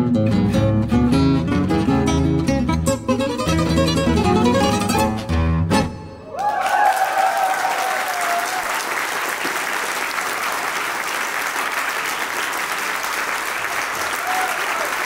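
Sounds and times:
tango music: 0:00.0 - 0:06.2
audience applauding: 0:06.3 - 0:15.0.

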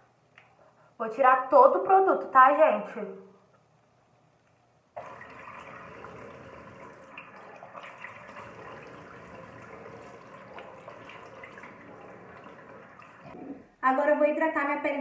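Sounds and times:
tap water running into sink: 0:05.0 - 0:13.4
water splashing on face: 0:05.0 - 0:13.4.

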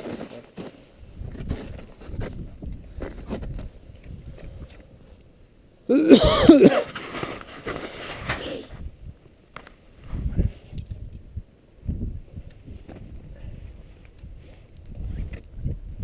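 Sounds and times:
person coughing: 0:05.9 - 0:06.9.

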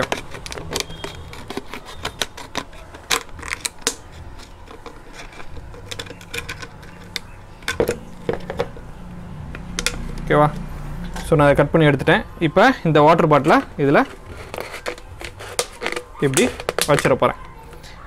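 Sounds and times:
scissors snipping plastic bottle: 0:00.0 - 0:08.8, 0:13.5 - 0:17.1.

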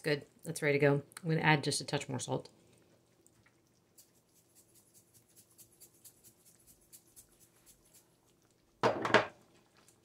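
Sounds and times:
salt shaker ticking: 0:03.7 - 0:08.1.

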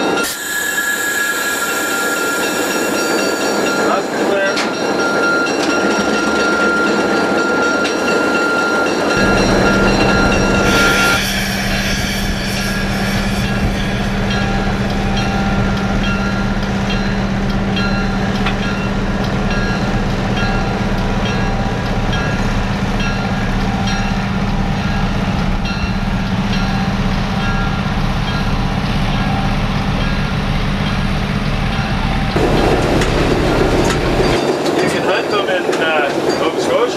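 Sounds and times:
diesel engine droning: 0:09.1 - 0:36.9.

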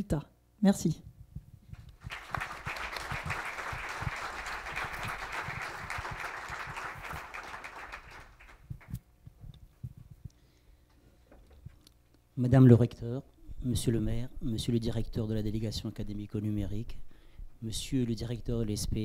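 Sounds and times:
audience applauding: 0:02.0 - 0:09.0.

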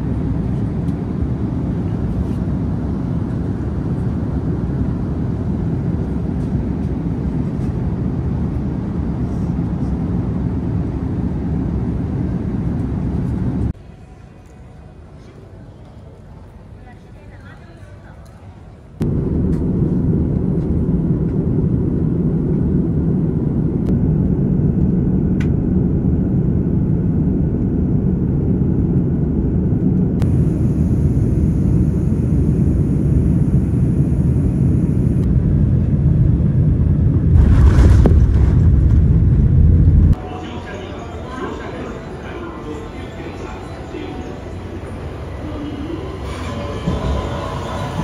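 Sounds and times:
vehicle rumble in motion: 0:19.0 - 0:40.2.

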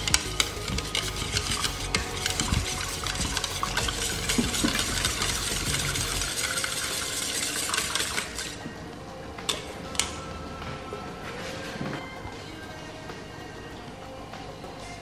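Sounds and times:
utensil stirring in container: 0:00.0 - 0:08.7.

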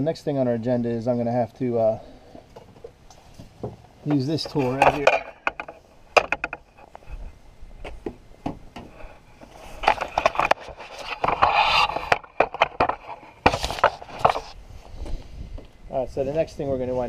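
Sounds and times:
jacket rustling against microphone: 0:08.9 - 0:17.0.

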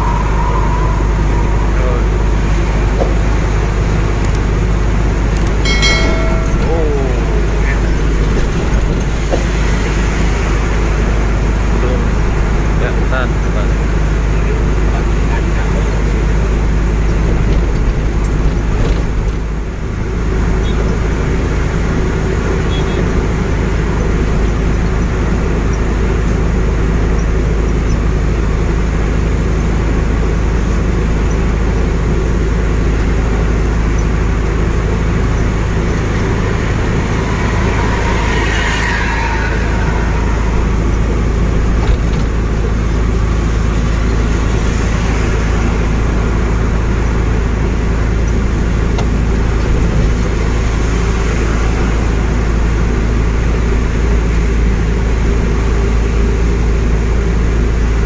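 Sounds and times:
truck engine drone and tyre noise: 0:00.0 - 0:58.0
passing bus spray rushing: 0:34.2 - 0:56.6.

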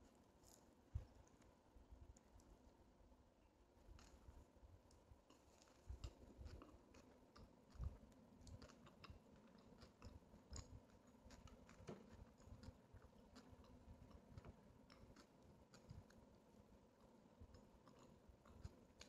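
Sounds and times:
chewing with mouth clicks: 0:04.0 - 0:19.0.

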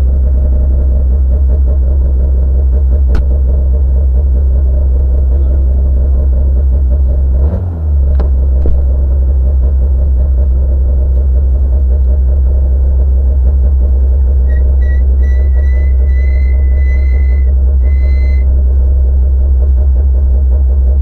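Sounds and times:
car engine idling: 0:00.0 - 0:21.0
high electronic beep: 0:14.5 - 0:18.5.

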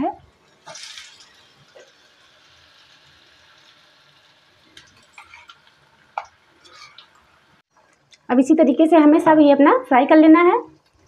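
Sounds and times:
food deep-frying in oil: 0:00.0 - 0:11.0
sharp oil crackles: 0:00.3 - 0:08.3.

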